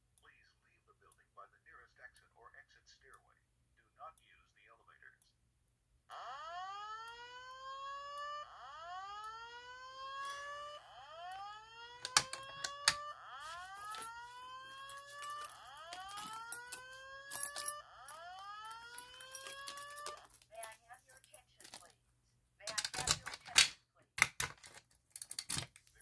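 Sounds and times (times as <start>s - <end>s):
fire alarm whoop tone: 6.1s - 20.3s
sharp clicks: 11.2s - 14.2s.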